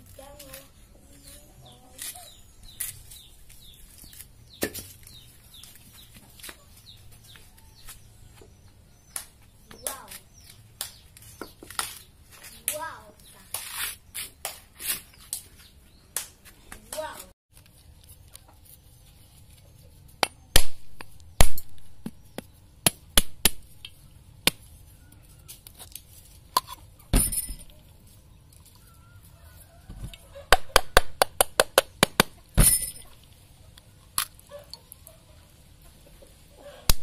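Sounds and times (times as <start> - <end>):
machete striking coconut shell: 20.2 - 22.2, 22.8 - 23.7.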